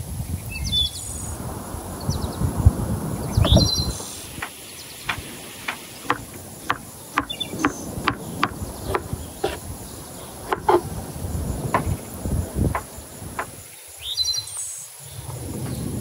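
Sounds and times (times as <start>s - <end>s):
birds chirping: 3.1s - 14.6s
thumps: 4.4s - 9.6s, 10.5s - 10.9s, 11.8s - 12.0s
knife chopping melon on board: 5.1s - 9.6s, 10.5s - 10.9s, 11.8s - 12.0s.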